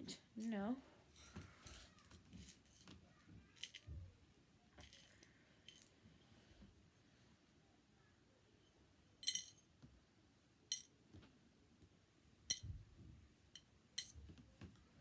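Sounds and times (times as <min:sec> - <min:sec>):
metal fishing tackle clinking: 0:09.2 - 0:09.7, 0:10.7 - 0:10.9, 0:13.6 - 0:14.2.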